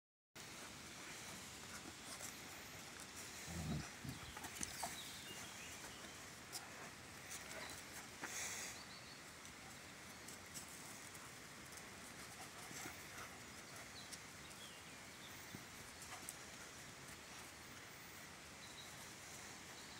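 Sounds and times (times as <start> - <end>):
dogs scuffling: 0.5 - 8.7
paws clicking on gravel: 0.5 - 8.7, 9.4 - 17.9.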